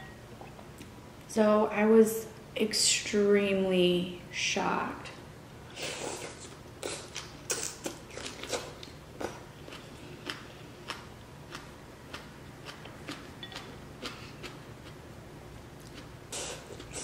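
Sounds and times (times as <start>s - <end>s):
person eating noodles: 5.7s - 15.0s, 15.8s - 17.0s.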